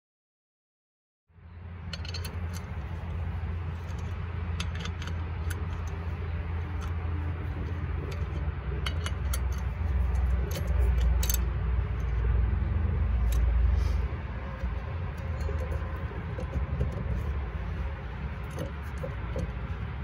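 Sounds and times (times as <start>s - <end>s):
low rumble: 1.4s - 20.0s
ratchet wrench clicking: 1.9s - 12.2s, 13.2s - 13.6s.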